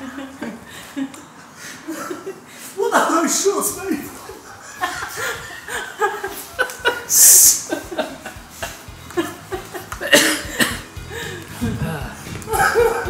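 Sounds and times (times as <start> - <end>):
men laughing: 0.0 - 2.8, 4.0 - 13.0
loud breathy hiss: 7.1 - 7.8.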